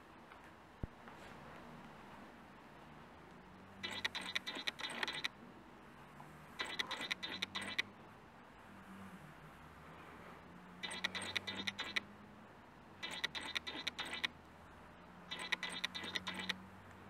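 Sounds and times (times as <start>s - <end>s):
lens autofocus motor buzzing: 3.8s - 5.3s, 6.6s - 7.8s, 10.8s - 12.0s, 13.0s - 14.3s, 15.3s - 16.6s.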